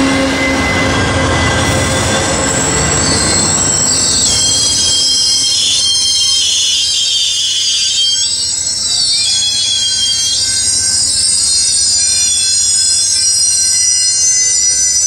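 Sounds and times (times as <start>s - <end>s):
diesel locomotive engine rumble: 0.0s - 6.9s
train wheels squealing on rails: 0.0s - 15.0s.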